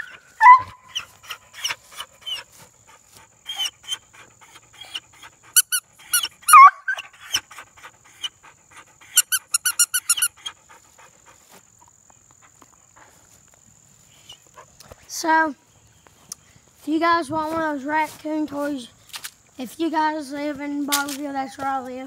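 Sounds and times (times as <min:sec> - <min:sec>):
squeaky plush toy squeaking: 0:05.6 - 0:06.8, 0:09.2 - 0:10.4.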